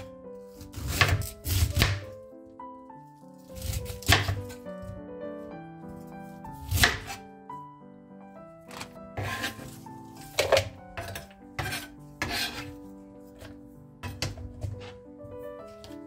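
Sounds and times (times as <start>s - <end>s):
knife slicing cabbage on board: 0.0s - 2.1s, 3.5s - 4.6s, 6.6s - 7.2s, 8.7s - 12.8s
light background music: 0.0s - 16.0s.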